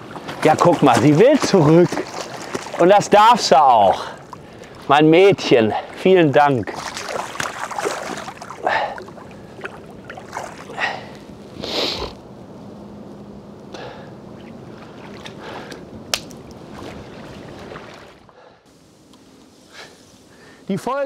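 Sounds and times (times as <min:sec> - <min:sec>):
water splashing: 0:00.0 - 0:11.2, 0:14.4 - 0:18.3.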